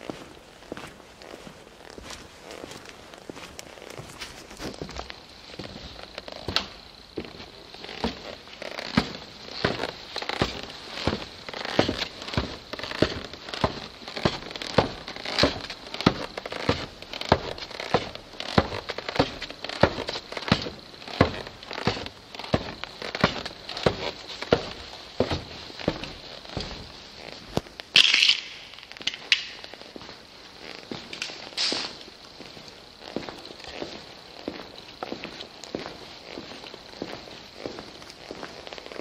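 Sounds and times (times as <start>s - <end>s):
gritty footsteps on debris: 0.0s - 39.0s.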